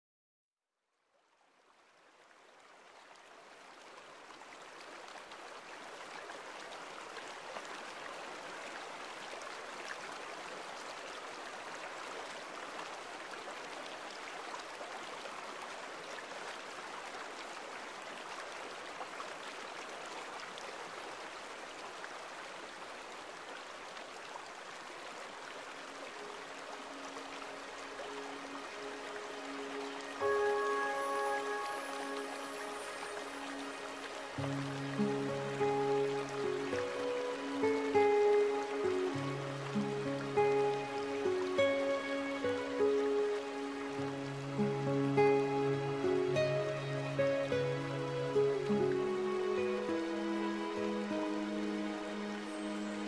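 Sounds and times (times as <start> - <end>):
stream water rushing: 1.6 - 53.0
sustained music notes: 28.2 - 53.0.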